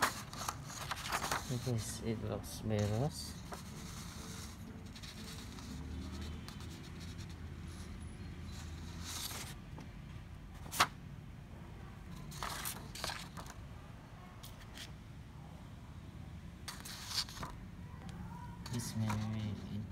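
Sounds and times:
paper sheets rustling: 0:00.0 - 0:02.0, 0:02.7 - 0:07.3, 0:08.5 - 0:09.6, 0:10.6 - 0:10.9, 0:12.2 - 0:13.6, 0:16.7 - 0:17.6, 0:18.6 - 0:19.7.

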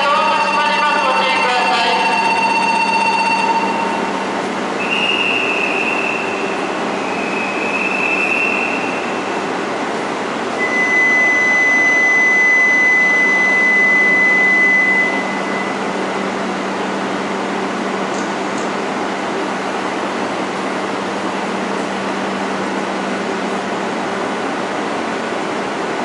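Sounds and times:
loud steady high whine: 0:00.0 - 0:26.0
train equipment humming: 0:00.0 - 0:26.0.

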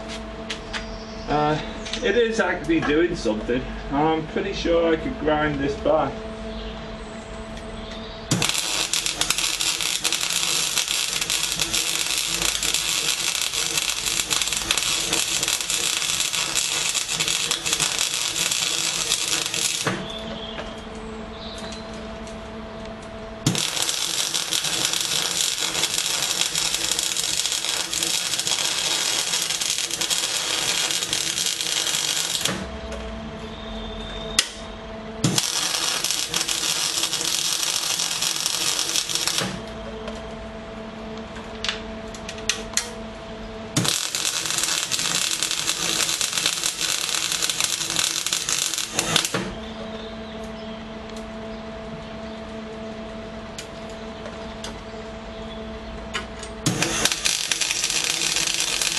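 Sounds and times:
steady hum: 0:00.0 - 0:58.9
welding arc crackle and hiss: 0:08.2 - 0:20.3, 0:23.4 - 0:32.7, 0:35.2 - 0:39.8, 0:43.7 - 0:49.6, 0:56.6 - 0:58.9.

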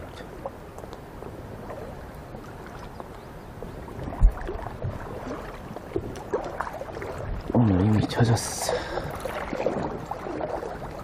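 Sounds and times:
stream water splashing around legs: 0:00.0 - 0:11.0.

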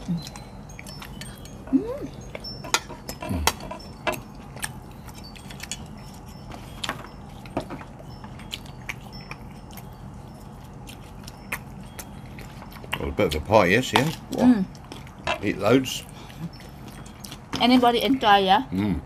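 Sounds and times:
faint steady background hum: 0:00.0 - 0:19.0
fork and spoon clinking on plates: 0:00.2 - 0:10.0.

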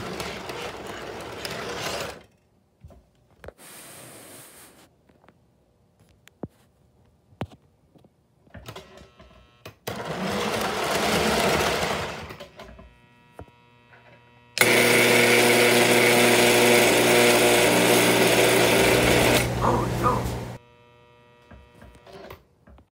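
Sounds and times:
vibrator mechanism buzzing: 0:08.7 - 0:22.4.

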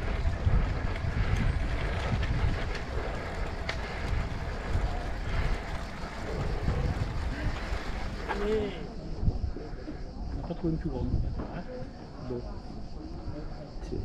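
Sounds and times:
faint clicks: 0:00.0 - 0:08.6
wind buffeting microphone: 0:00.0 - 0:12.0.

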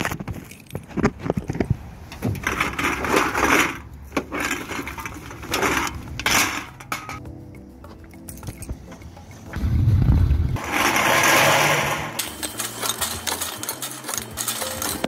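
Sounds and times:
cans clattering: 0:02.1 - 0:07.2, 0:10.6 - 0:15.0.

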